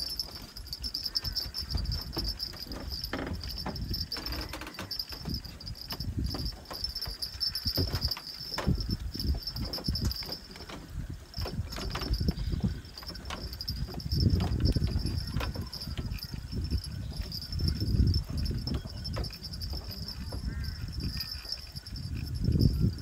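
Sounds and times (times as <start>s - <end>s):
insects chirring: 0.0s - 23.0s.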